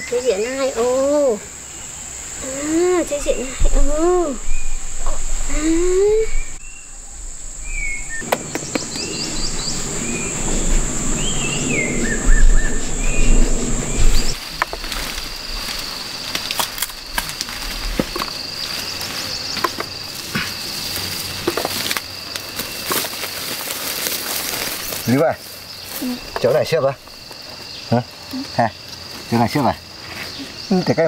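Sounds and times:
insects droning: 0.0 - 31.0
short chirping calls: 7.6 - 14.4.

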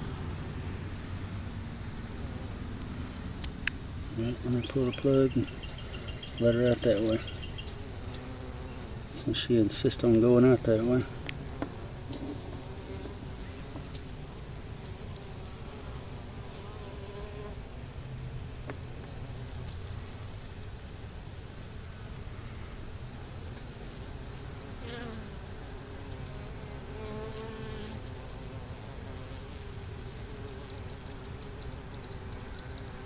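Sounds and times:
honey bees buzzing: 0.0 - 33.0
single bee buzzing past: 1.9 - 4.1, 5.4 - 17.8, 23.2 - 33.0.

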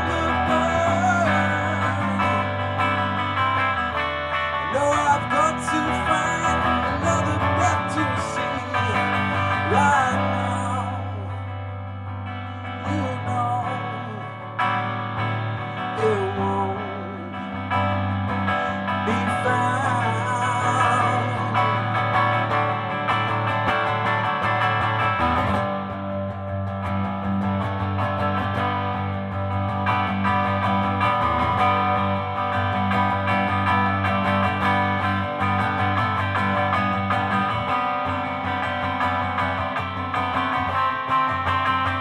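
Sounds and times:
man singing: 0.0 - 2.8, 4.6 - 11.5, 12.6 - 14.6, 15.7 - 18.0, 18.6 - 22.1
guitar strumming: 0.0 - 42.0.

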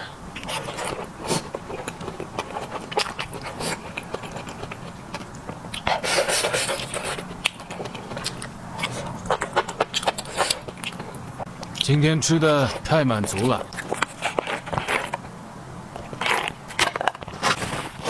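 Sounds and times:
chewing noodles: 0.4 - 12.0, 12.6 - 15.2.

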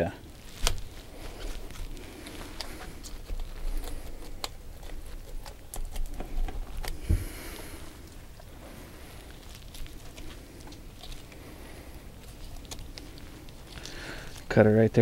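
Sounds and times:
knife scraping scales and bone: 0.6 - 7.0.

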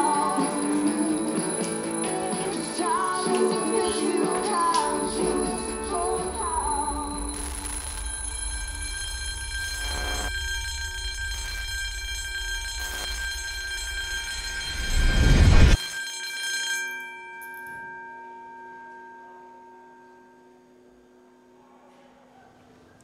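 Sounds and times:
many-toned drone: 0.0 - 15.8
ringing tone: 0.0 - 21.6.

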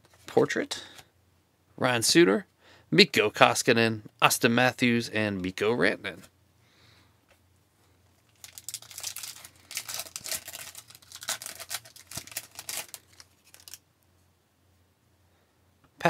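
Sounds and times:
foil wrapper tearing and crinkling: 8.3 - 13.8
cards being pulled out: 8.4 - 13.8.

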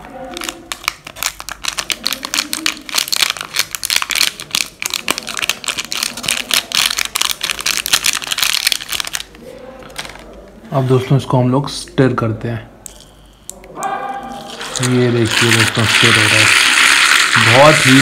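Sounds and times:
sachet crinkling: 0.0 - 9.4, 14.4 - 18.0.

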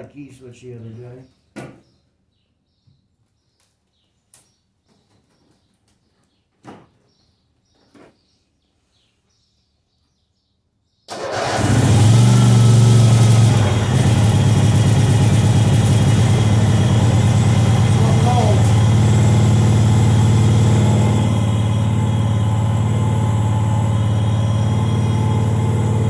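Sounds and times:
garden tractor engine running: 11.1 - 26.0.

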